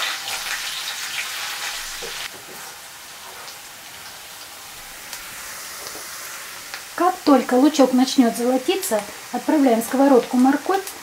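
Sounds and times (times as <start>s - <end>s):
onion sizzling in oil: 0.0s - 11.0s
spatula stirring in pan: 0.3s - 4.1s.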